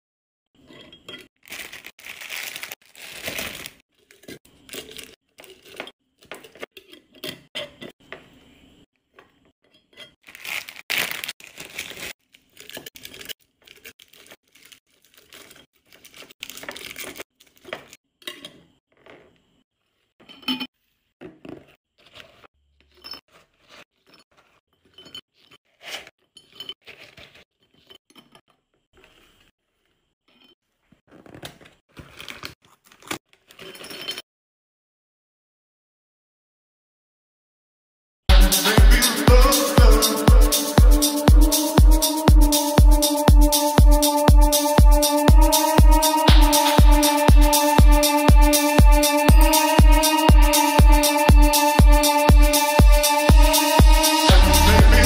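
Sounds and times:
plastic wrappers crinkling: 0:01.4 - 0:05.8, 0:10.2 - 0:18.0.

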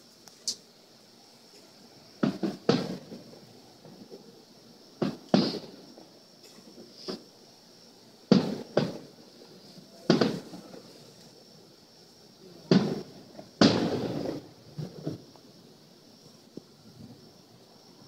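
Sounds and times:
fireworks bangs echoing: 0:02.2 - 0:07.3, 0:08.2 - 0:11.0, 0:12.6 - 0:15.5.

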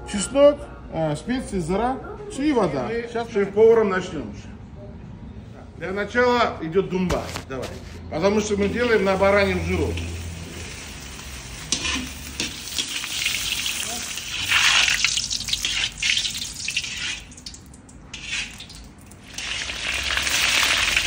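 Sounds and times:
fat sizzling in a pot: 0:08.6 - 0:21.0
skimmer scraping metal pot: 0:11.6 - 0:13.2, 0:14.2 - 0:17.5, 0:18.1 - 0:20.9.

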